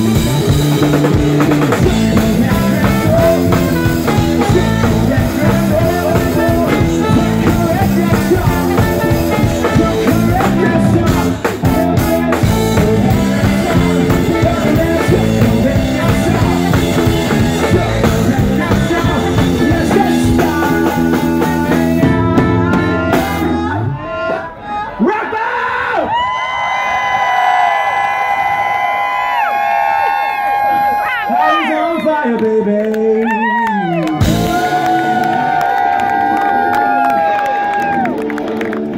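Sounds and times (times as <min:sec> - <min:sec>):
drum kit: 0:00.0 - 0:23.8, 0:34.2 - 0:38.0
electric guitar: 0:00.0 - 0:24.0, 0:33.2 - 0:38.9
bass guitar: 0:00.0 - 0:24.6, 0:33.2 - 0:38.9
man singing: 0:00.0 - 0:24.7, 0:31.3 - 0:35.6
trombone: 0:02.0 - 0:20.8.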